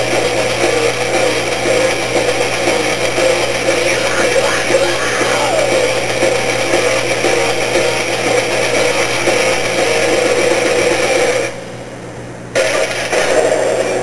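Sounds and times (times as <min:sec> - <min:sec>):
harsh distorted grinding din: 0:03.7 - 0:06.4.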